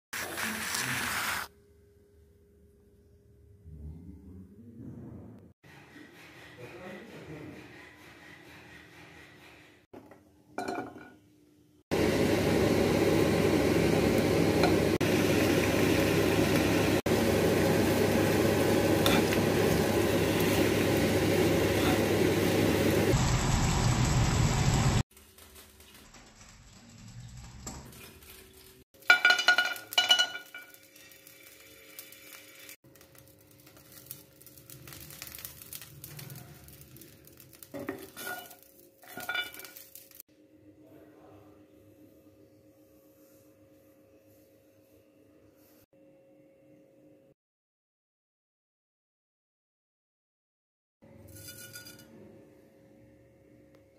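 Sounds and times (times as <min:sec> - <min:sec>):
utensil clinking against dishes: 0:10.6 - 0:11.2, 0:29.0 - 0:30.8
vegetables sizzling in frying pan: 0:12.0 - 0:40.2.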